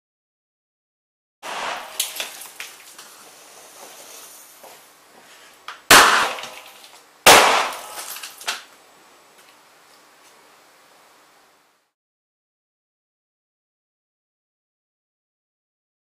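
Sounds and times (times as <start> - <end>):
explosive charges banging: 1.4 - 2.5, 5.9 - 6.6, 7.3 - 7.9
crackling pops: 1.4 - 4.0, 5.7 - 8.7.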